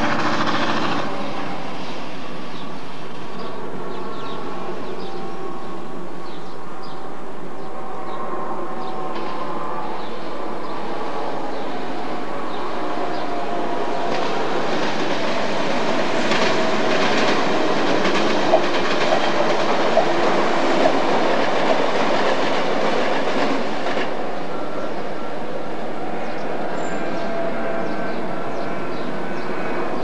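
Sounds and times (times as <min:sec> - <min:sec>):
wheels clacking over rail joints: 0:00.0 - 0:01.3, 0:13.1 - 0:24.2
train running past: 0:00.0 - 0:30.0.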